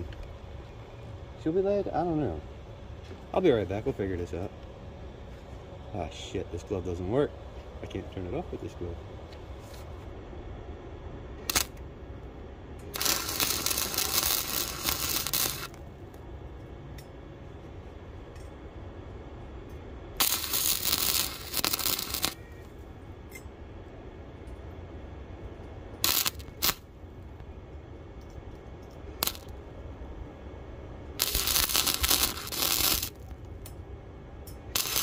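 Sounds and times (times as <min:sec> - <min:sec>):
welder arc crackling: 0:11.4 - 0:11.9, 0:12.8 - 0:16.3, 0:20.2 - 0:22.9, 0:25.9 - 0:27.5, 0:29.0 - 0:29.7, 0:31.1 - 0:33.7, 0:34.7 - 0:35.0.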